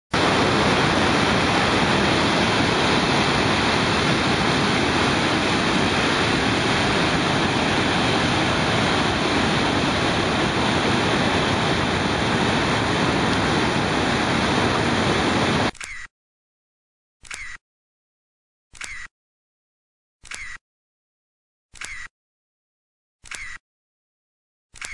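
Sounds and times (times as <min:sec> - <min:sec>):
waterfall rushing: 0:00.2 - 0:15.7.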